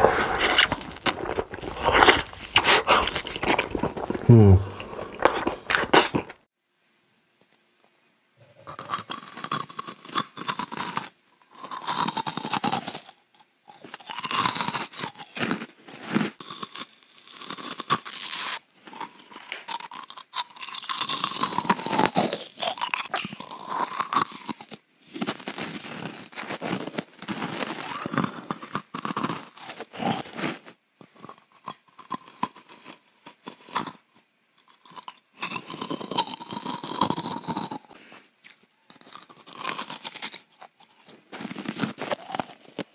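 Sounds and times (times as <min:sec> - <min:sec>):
crunching and chewing food: 0:00.0 - 0:06.5, 0:08.4 - 0:42.9.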